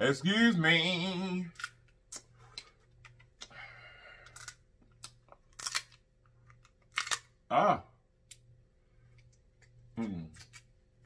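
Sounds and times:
crab shell cracking: 4.2 - 6.0, 6.6 - 7.3.

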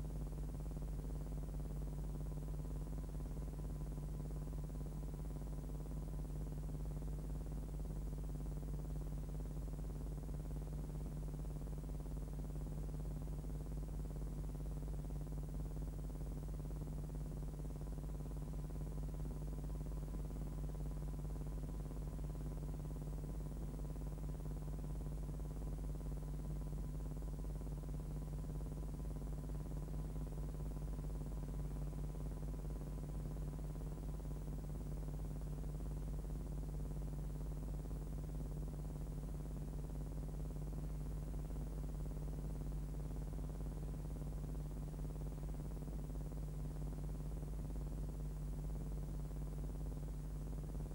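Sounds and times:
steady low hum: 0.0 - 50.9.

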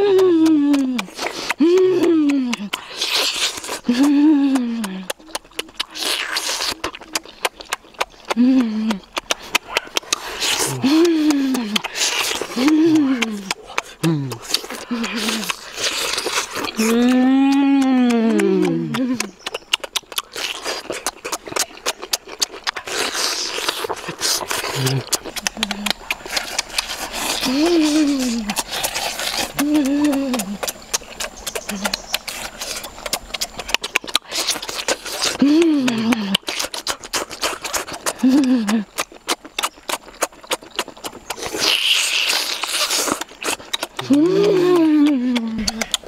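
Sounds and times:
boy humming mmm: 0.0 - 2.9, 3.7 - 6.0, 8.2 - 19.4, 23.3 - 36.8, 38.0 - 39.1, 43.9 - 46.0
wet mouth clicks: 0.0 - 46.0
breathy sucking sounds: 8.3 - 19.2.

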